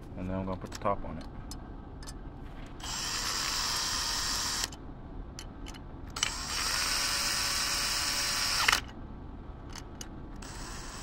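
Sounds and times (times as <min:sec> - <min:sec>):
cordless drill motor whine: 0:02.8 - 0:04.7, 0:06.2 - 0:08.8, 0:10.4 - 0:11.0.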